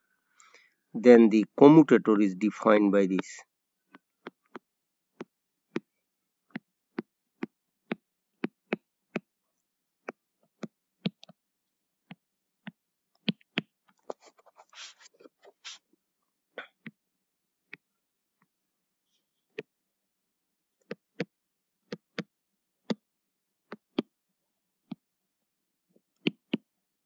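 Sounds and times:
scratchy rustling: 14.0s - 15.8s.

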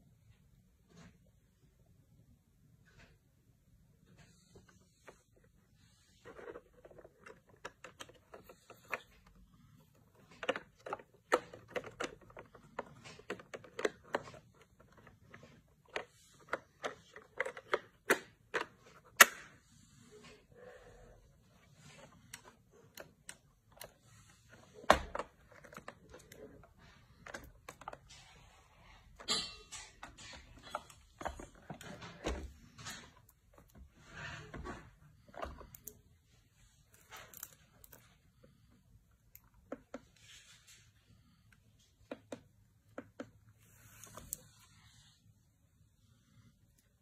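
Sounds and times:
hand handling plastic clicks: 6.2s - 19.5s, 36.8s - 38.2s.

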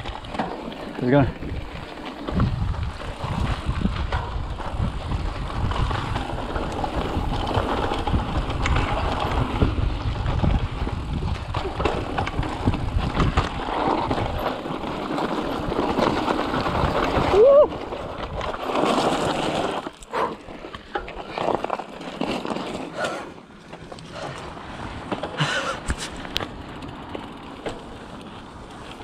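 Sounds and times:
bike frame rattling: 0.0s - 29.0s
tyres crunching on trail: 0.0s - 29.0s
wind buffeting microphone: 1.1s - 18.6s.

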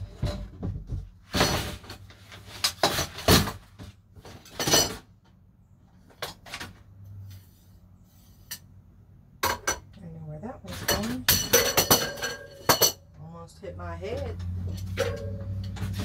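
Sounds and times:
objects knocking and clattering: 0.0s - 5.4s, 9.4s - 10.0s, 10.7s - 13.2s, 14.4s - 16.0s.

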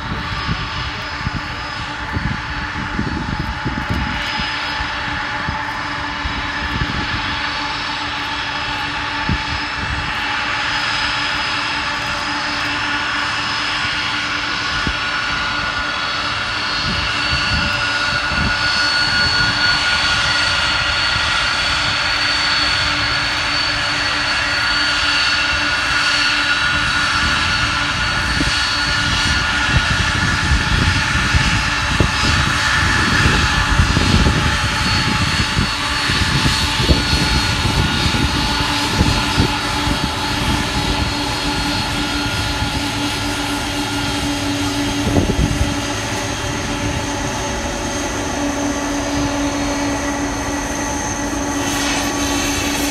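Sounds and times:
jet engines whining: 0.0s - 52.9s.

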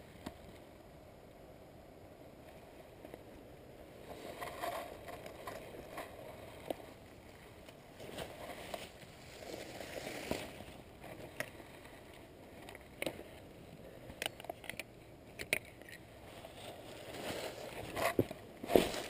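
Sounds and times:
dry leaves rustling: 4.1s - 12.6s, 16.2s - 19.0s
fishing gear clicks and knocks: 11.0s - 16.1s.

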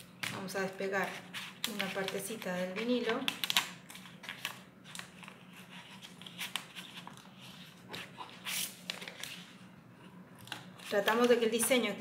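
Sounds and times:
vinyl sheet rustling: 0.3s - 9.7s.

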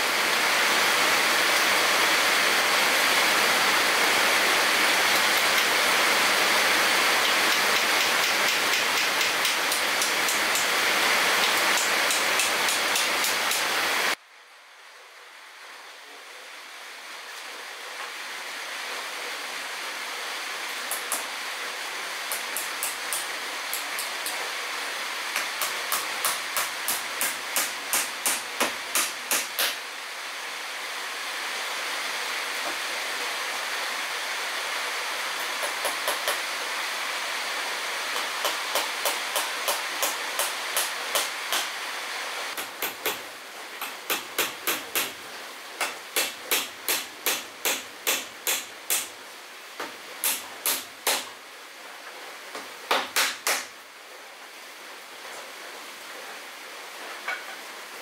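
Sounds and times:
steady background hiss: 0.0s - 58.0s
hammer driving nails into wood: 7.2s - 10.7s, 25.4s - 29.8s, 35.4s - 36.4s, 42.6s - 45.2s, 45.8s - 49.1s, 50.2s - 51.3s, 52.9s - 53.7s.

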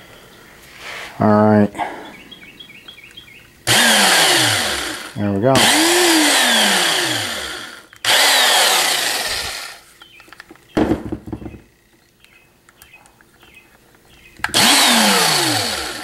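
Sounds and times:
electric drill motor whirring: 3.6s - 9.9s, 14.4s - 16.0s.

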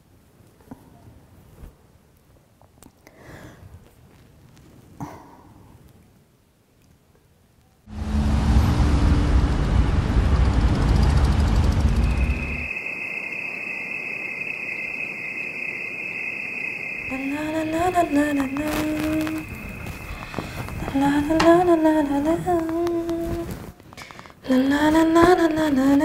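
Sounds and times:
loud rushing rumbling noise: 7.9s - 21.4s
crickets chirring: 11.8s - 23.0s
woman humming: 20.1s - 23.6s.

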